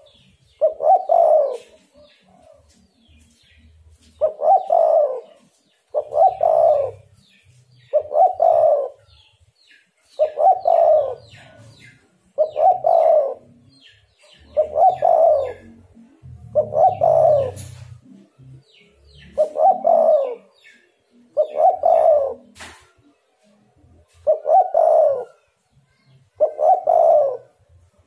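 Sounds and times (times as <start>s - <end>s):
dove cooing: 0.0s - 2.7s, 4.0s - 7.2s, 7.8s - 9.2s, 10.2s - 18.3s, 19.2s - 20.6s, 21.2s - 22.6s, 24.1s - 25.5s, 26.4s - 27.6s.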